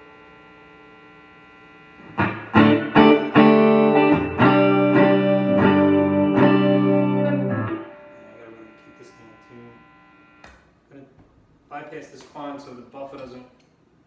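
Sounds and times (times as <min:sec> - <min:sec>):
faint amp hum: 0:00.0 - 0:14.0
electric guitar strummed chords: 0:02.0 - 0:09.9.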